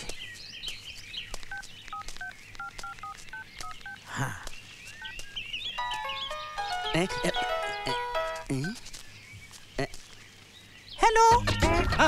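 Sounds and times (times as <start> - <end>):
faint bird chirps: 0.0 - 12.0
phone keypad beeps: 1.5 - 4.0
electronic ringtone melody: 5.8 - 8.5.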